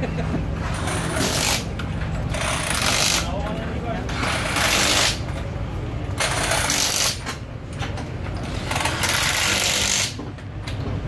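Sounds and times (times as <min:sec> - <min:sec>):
pneumatic impact wrench: 0:00.6 - 0:03.3, 0:04.1 - 0:05.3, 0:06.2 - 0:07.4, 0:08.4 - 0:10.3.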